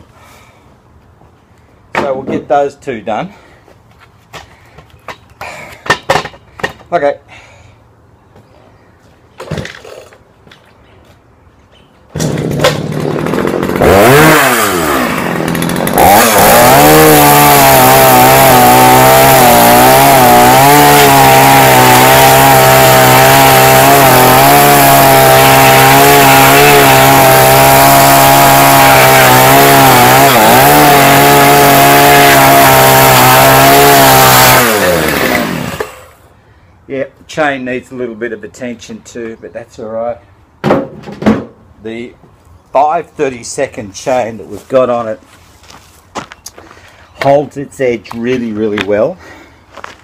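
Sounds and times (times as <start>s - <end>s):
chainsaw cutting wood: 12.1s - 36.2s.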